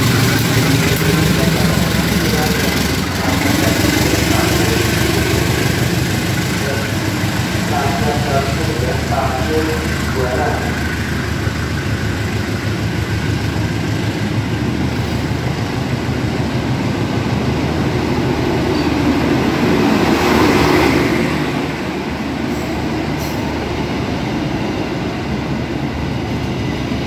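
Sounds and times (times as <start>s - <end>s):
train wheels on rails: 0.0s - 27.0s.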